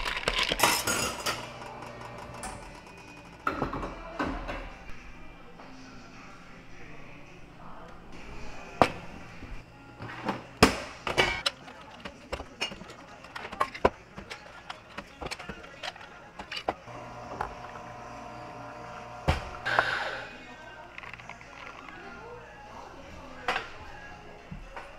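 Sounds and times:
glass tumblers clinking: 0.0 - 1.6, 11.2 - 16.8.

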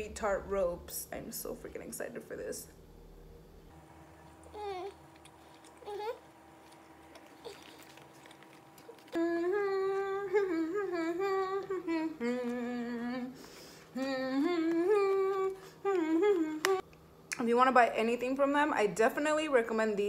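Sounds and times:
chewing candy: 4.4 - 10.2
woman humming: 8.8 - 16.9.

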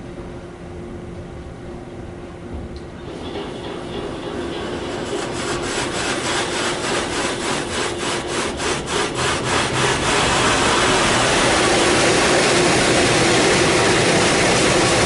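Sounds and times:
steady hum: 0.0 - 15.0
water jets spraying a car: 3.1 - 15.0.

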